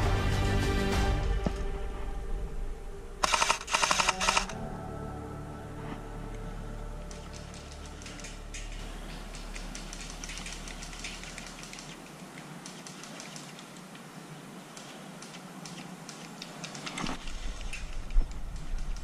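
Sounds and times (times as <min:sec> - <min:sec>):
sharp clicks in leaves: 0:03.2 - 0:04.5, 0:07.0 - 0:19.0.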